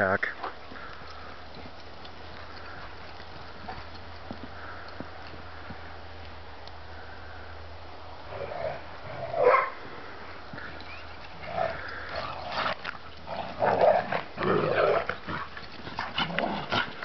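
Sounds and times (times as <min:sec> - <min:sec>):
dogs growling and barking: 0:08.3 - 0:09.8, 0:11.3 - 0:17.0.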